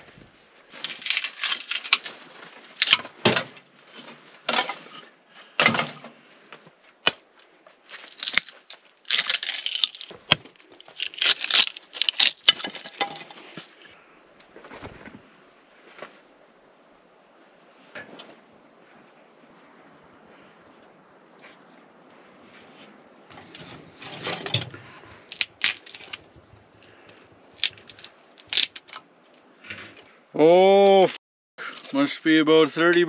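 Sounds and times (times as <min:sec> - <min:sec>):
wood cracking: 0:00.0 - 0:15.1, 0:23.3 - 0:30.1.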